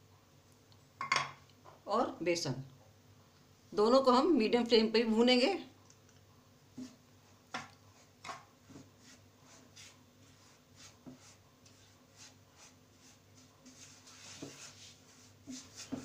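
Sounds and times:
spatula scraping a frying pan: 7.9 - 16.0.

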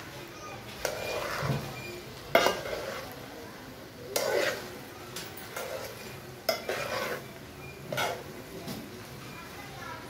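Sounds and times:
metal spoon scraping a pot: 0.7 - 3.2, 4.1 - 4.8, 5.4 - 8.4.

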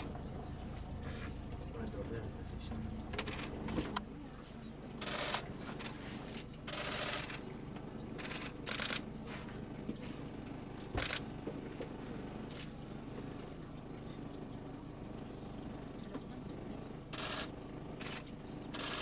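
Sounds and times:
low steady rumble: 0.0 - 19.0
camera shutters firing: 11.0 - 11.3.

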